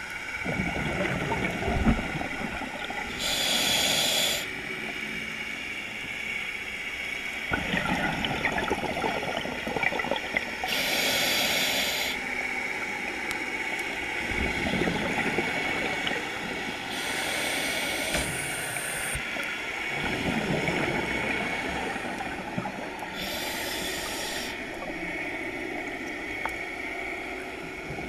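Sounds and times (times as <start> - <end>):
gurgling exhaled bubbles: 0.4 - 3.6, 7.5 - 10.8, 14.3 - 16.9, 19.9 - 23.4
hissing regulator inhales: 3.1 - 4.5, 10.7 - 12.2, 16.9 - 19.2, 23.1 - 24.6.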